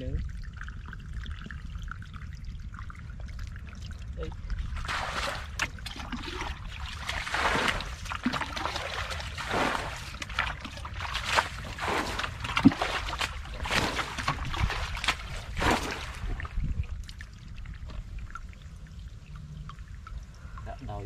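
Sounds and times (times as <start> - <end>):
bucket splashing water: 4.6 - 18.4.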